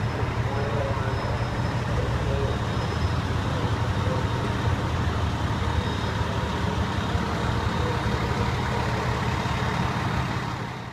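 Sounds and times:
diesel engine idling: 0.0s - 10.9s.

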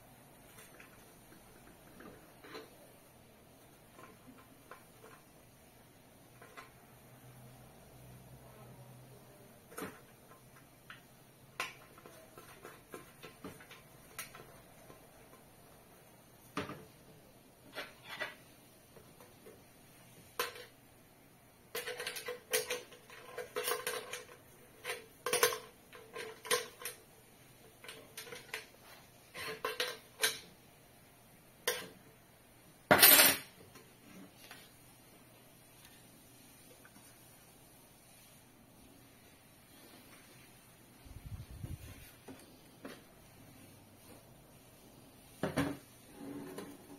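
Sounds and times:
scraping rustle: 39.2s - 42.7s.

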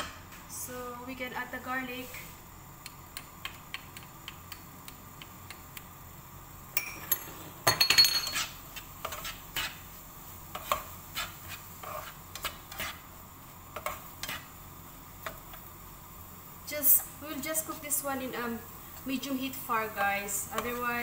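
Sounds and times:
utensil scraping frying pan: 7.2s - 14.6s.

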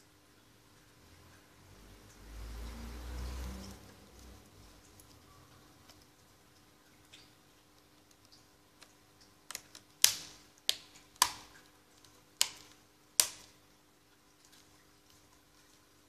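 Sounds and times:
plastic clips snapping in: 9.5s - 11.6s, 12.4s - 13.6s.

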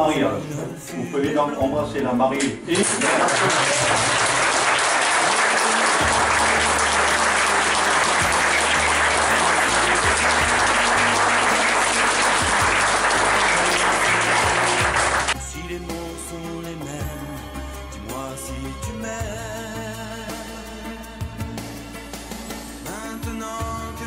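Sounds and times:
background music: 0.0s - 24.0s
guests applauding: 2.7s - 15.4s.

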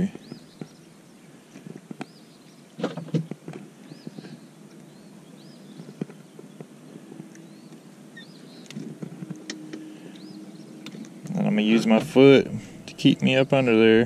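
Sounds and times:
high bird chirp: 3.8s - 6.7s, 7.3s - 8.8s, 9.4s - 12.0s.

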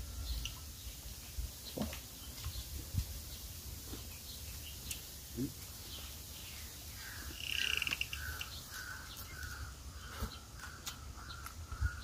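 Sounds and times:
short repeated bird calls: 6.6s - 12.0s.

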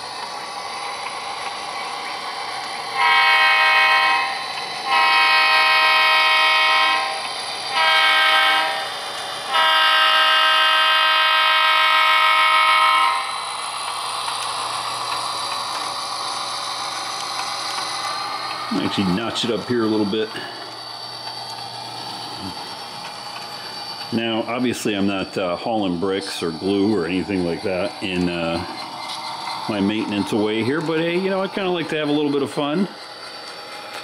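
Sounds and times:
model locomotive engine sound: 0.0s - 34.0s
model train horn blasts: 2.9s - 13.4s.

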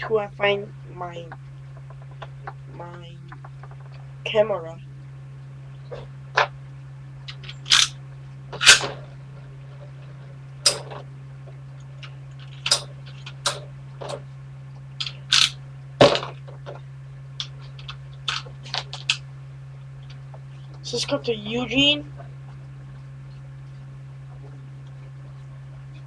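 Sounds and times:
steady low hum: 0.0s - 26.0s
irregular clicks and knocks: 10.6s - 14.2s.

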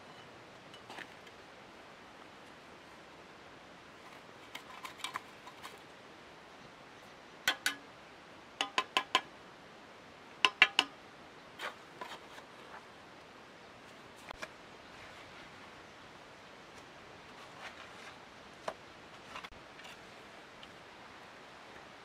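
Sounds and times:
trowel tapping bricks: 7.5s - 7.8s, 8.6s - 9.3s, 10.4s - 11.0s.

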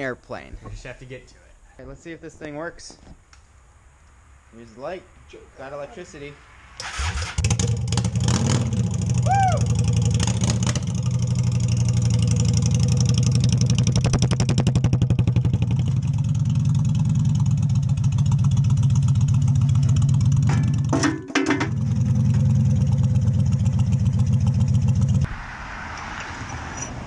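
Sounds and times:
motorcycle engine running: 7.4s - 25.3s.

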